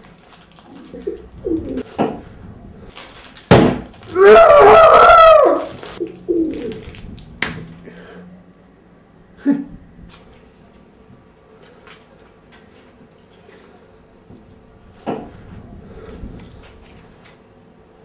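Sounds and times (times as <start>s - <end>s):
plastic wrapper crackling: 0.0s - 4.3s, 5.3s - 7.8s, 11.6s - 13.8s
sharp crack: 3.0s - 4.3s.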